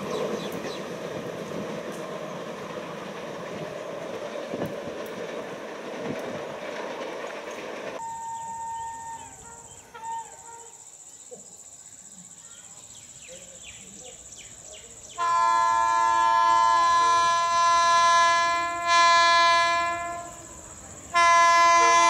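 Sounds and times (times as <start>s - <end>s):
train wheels rumbling on track: 0.0s - 9.7s, 14.4s - 22.0s
faint whistling tones: 8.0s - 10.8s
high insect buzz: 15.0s - 22.0s.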